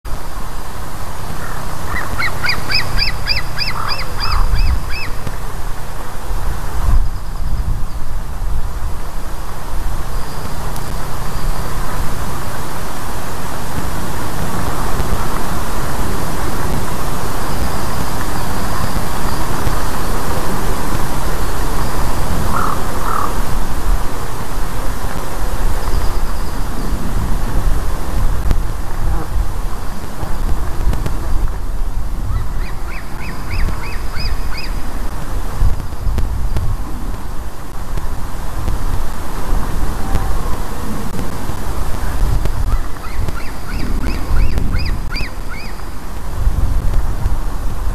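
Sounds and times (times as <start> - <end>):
wind buffeting microphone: 0.0 - 47.9
steady low rumble: 0.1 - 47.9
eaglet calling: 1.3 - 5.4, 21.8 - 23.4, 32.3 - 34.8, 42.6 - 46.0.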